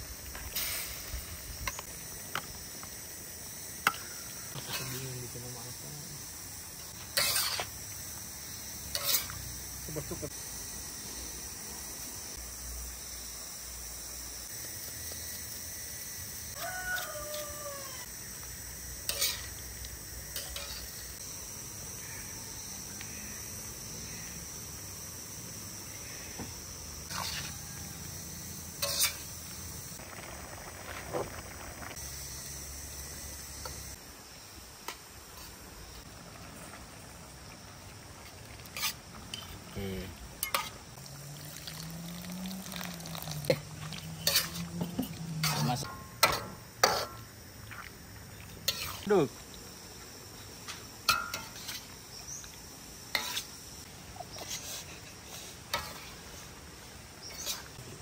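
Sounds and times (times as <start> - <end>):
steady hiss: 0.0 - 58.0
utensils clinking against a pan: 40.4 - 40.8, 43.4 - 47.2, 50.7 - 51.9.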